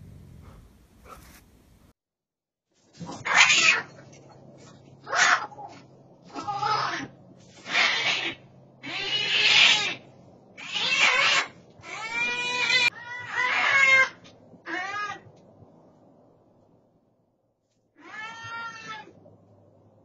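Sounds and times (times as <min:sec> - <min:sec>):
bobcat screaming yowls: 0:03.1 - 0:03.9, 0:05.1 - 0:10.0, 0:10.6 - 0:15.3, 0:18.0 - 0:19.2.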